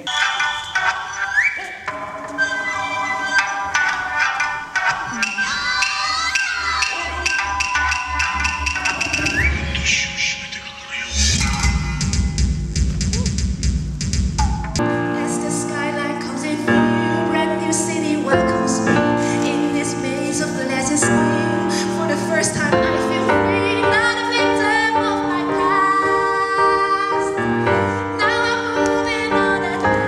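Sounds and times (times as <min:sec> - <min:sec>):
piano chords: 0:14.4 - 0:30.0
woman singing into a microphone: 0:14.9 - 0:30.0.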